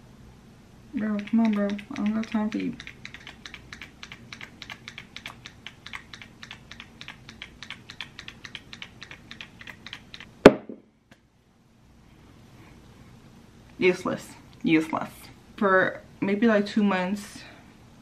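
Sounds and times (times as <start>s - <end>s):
fast light clicks: 1.0s - 10.4s
loud knock: 10.4s - 10.8s.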